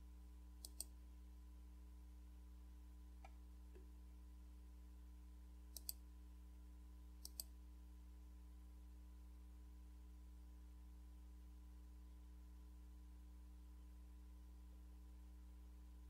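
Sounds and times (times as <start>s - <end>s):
faint hum: 0.0s - 16.0s
mouse button clicks: 0.6s - 0.9s, 5.8s - 6.0s, 7.2s - 7.5s.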